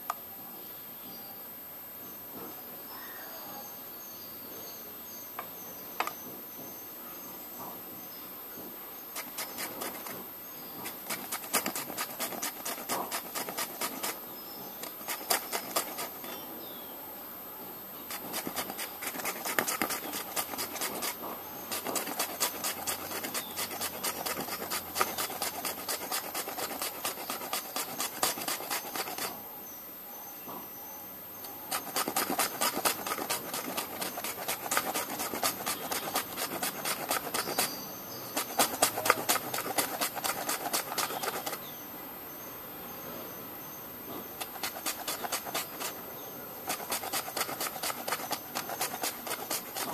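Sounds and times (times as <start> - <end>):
potato rasping on metal grater: 9.2 - 10.2, 10.8 - 16.4, 18.1 - 29.4, 31.7 - 41.7, 44.3 - 49.9.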